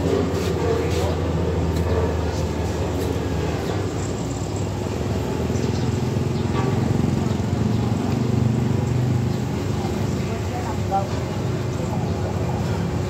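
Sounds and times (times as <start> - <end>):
motorcycle passing: 4.3 - 10.8.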